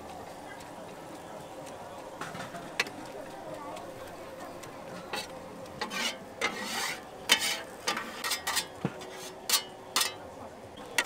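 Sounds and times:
metal utensils clattering on pots: 5.0 - 10.3.

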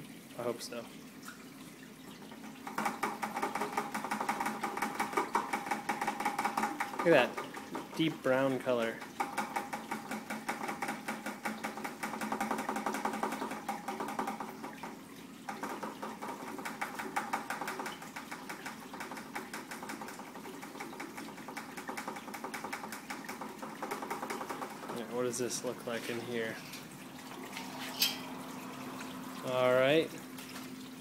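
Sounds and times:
liquid splashing into glass jug: 8.9 - 29.6.

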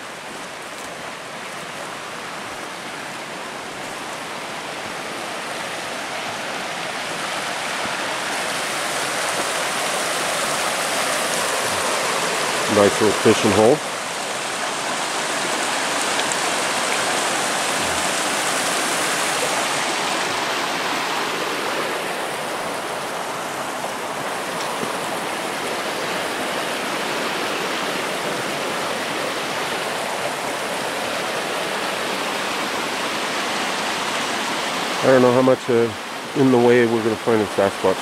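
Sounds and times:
creek water rushing over rocks: 0.0 - 38.0.

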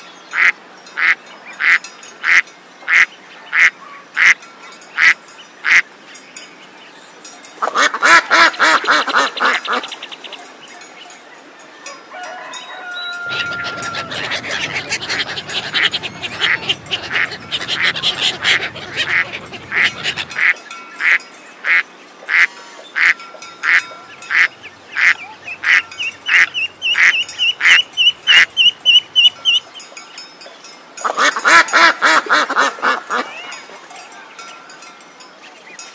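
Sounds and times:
ducks quacking: 7.6 - 10.0, 13.2 - 29.6, 31.0 - 33.7.

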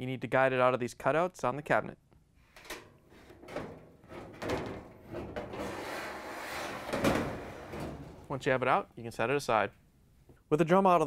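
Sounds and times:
metal rim scraping cabinet: 2.7 - 8.6.

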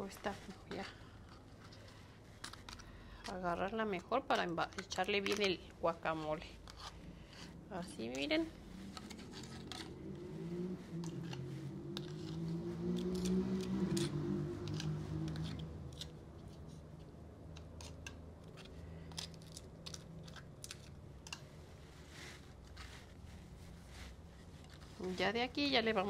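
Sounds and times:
spoon scraping and tapping crisp shells: 0.5 - 10.0, 11.0 - 21.5
low droning hum: 6.0 - 26.0.

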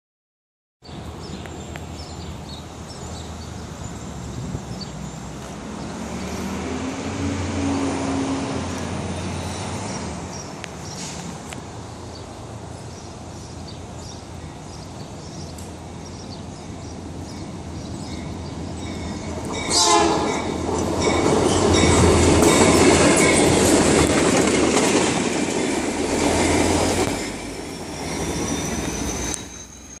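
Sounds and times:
town traffic noise: 0.8 - 30.0
diesel locomotive rumble: 0.9 - 30.0
train wheels clattering: 18.9 - 29.7.

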